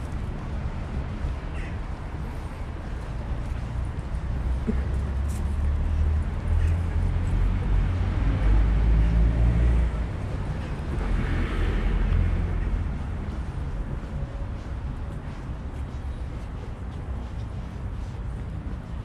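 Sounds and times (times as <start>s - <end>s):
traffic engine rumble: 0.0s - 19.0s.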